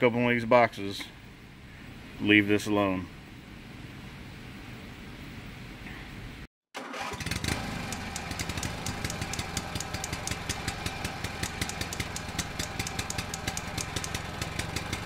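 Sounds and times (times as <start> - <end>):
engine running with rapid ticks: 7.0 - 15.0.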